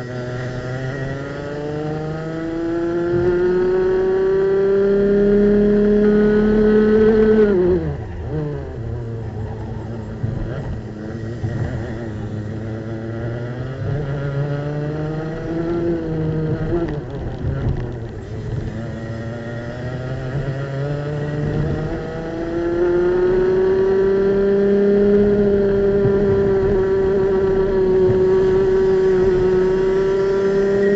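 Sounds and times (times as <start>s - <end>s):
kart engine revving: 0.0s - 30.9s.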